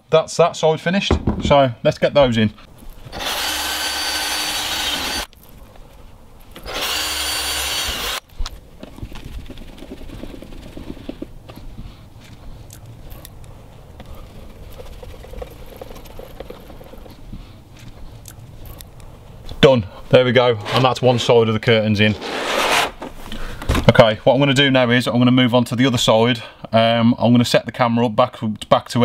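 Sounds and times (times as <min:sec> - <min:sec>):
cordless drill whining: 0:03.1 - 0:05.3, 0:06.6 - 0:08.2.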